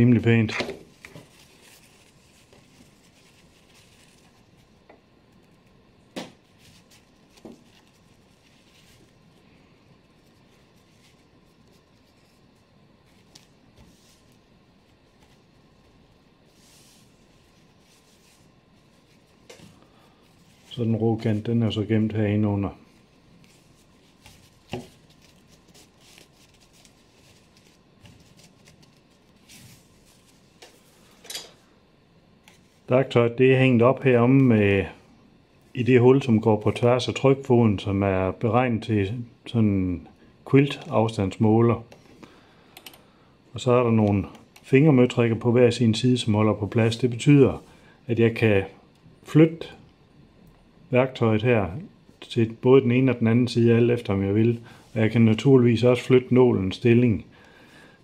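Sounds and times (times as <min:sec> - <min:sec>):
fabric rustling: 0:00.9 - 0:04.8, 0:06.4 - 0:22.0, 0:22.8 - 0:31.2.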